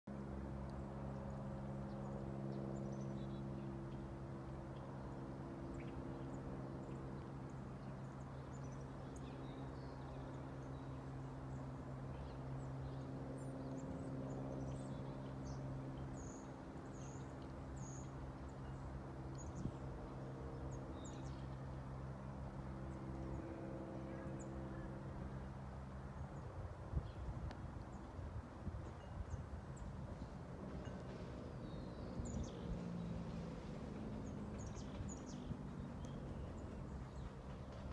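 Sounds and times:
light aircraft engine drone: 0.1 - 37.9
small birds chirping: 31.4 - 37.9.

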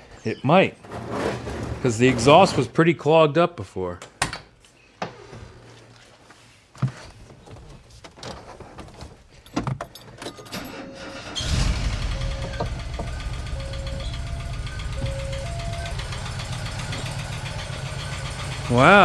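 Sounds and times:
van engine rumbling: 10.6 - 19.0.

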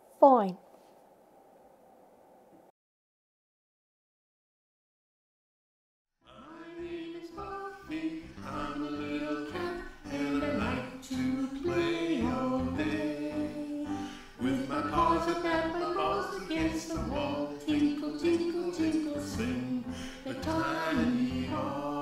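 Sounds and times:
song with sung vocals: 6.3 - 22.0.

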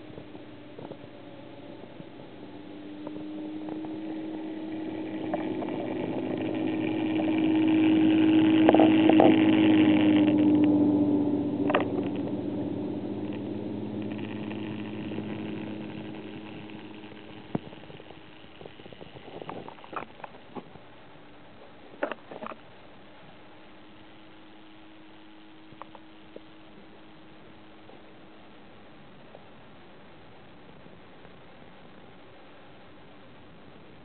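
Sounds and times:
motor hum: 0.0 - 33.6.

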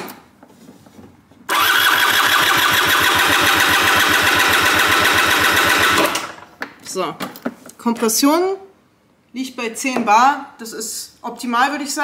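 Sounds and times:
scooter engine cranked by starter: 1.5 - 6.5.

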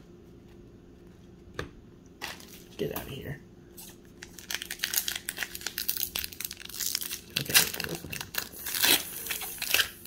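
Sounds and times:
foil wrapper crinkling: 3.8 - 10.0.

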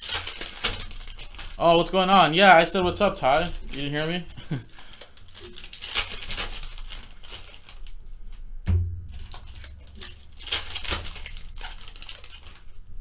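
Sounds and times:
cards rustling: 0.0 - 8.4, 9.2 - 12.9
foil packs crinkling: 0.0 - 8.4, 9.1 - 13.0
dull thump: 8.6 - 11.2.

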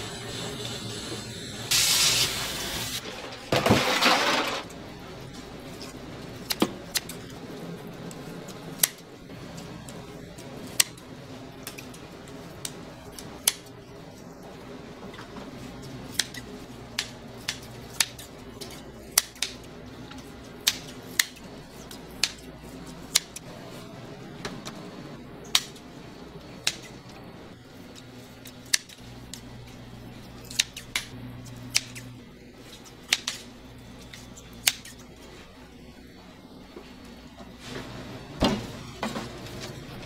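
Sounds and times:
low background hum: 0.0 - 40.0
kitchen shears snipping: 16.1 - 19.6, 30.4 - 32.1, 32.8 - 35.0.

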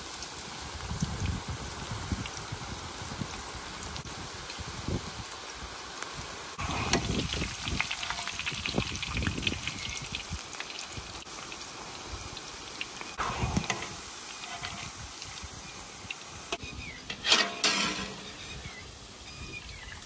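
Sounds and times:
food deep-frying in oil: 0.0 - 20.0
metal skimmer in oil: 6.6 - 9.1, 13.2 - 18.8.

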